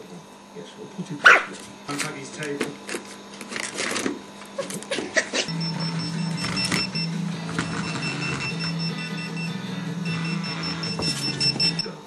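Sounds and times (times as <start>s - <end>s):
phone vibrating on wooden floor: 5.5s - 12.0s
ringtone high beeps: 5.5s - 12.0s.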